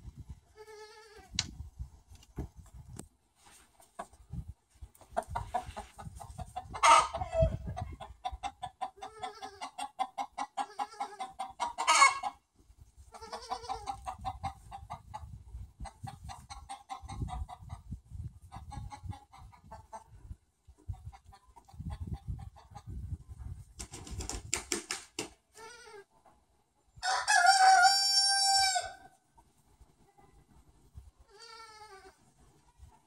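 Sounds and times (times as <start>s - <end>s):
chickens clucking: 3.7s - 24.3s
chicken squawking: 6.6s - 12.4s.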